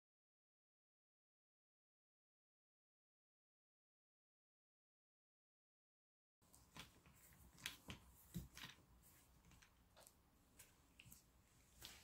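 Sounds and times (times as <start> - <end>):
small clicks and rustles of hands: 6.4 - 12.0.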